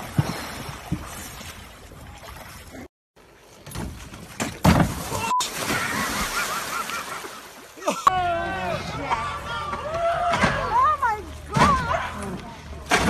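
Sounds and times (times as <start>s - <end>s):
water sloshing: 0.0s - 8.1s
loud water splash: 4.6s - 7.8s.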